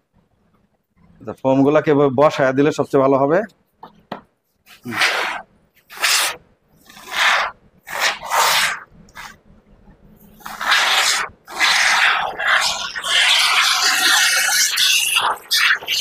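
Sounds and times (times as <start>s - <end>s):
aerosol foam can hissing: 4.7s - 9.4s, 10.4s - 16.0s.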